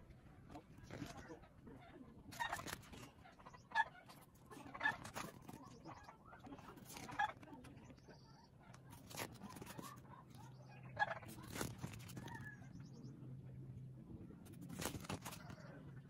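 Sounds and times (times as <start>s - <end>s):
book pages rustling and flicking: 0.5s - 1.3s, 2.3s - 3.1s, 5.0s - 5.8s, 6.6s - 7.6s, 8.7s - 10.5s, 11.2s - 12.5s, 14.4s - 15.6s.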